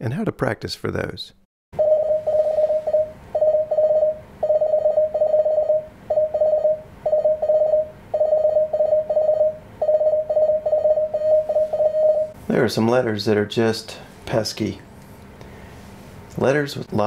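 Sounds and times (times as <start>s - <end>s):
morse code tone: 1.8s - 12.4s.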